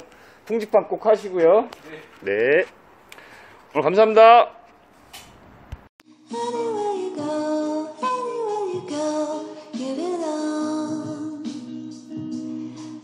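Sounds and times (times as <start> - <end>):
song with singing voice: 6.0 - 13.0.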